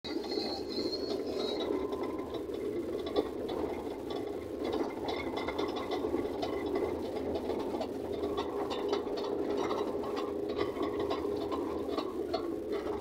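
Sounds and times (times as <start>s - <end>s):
truck engine and road noise: 0.0s - 13.0s
cab rattling and clicking: 0.1s - 13.0s.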